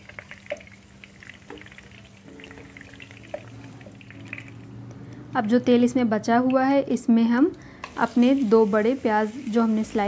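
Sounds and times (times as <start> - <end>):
oil sizzling in a frying pan: 0.0 - 4.7, 7.8 - 10.0.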